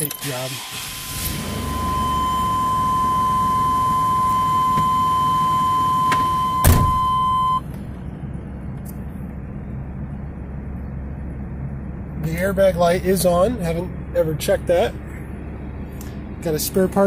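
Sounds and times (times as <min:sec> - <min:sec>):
van engine idling: 0:00.0 - 0:17.0
high warning beep: 0:01.3 - 0:07.6
loud thunk: 0:06.6 - 0:07.0.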